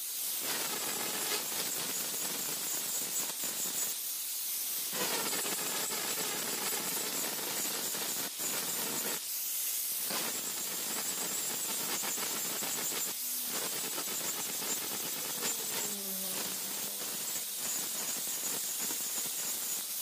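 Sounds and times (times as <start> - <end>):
angle grinder grinding steel: 5.0 - 9.2, 10.1 - 20.0
high motor whine: 10.1 - 19.5.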